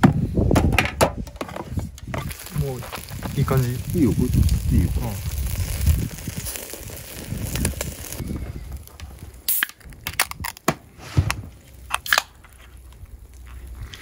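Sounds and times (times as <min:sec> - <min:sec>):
beer can opening with hiss: 0:01.6 - 0:08.2, 0:09.4 - 0:12.6
grill sizzling: 0:02.0 - 0:14.0.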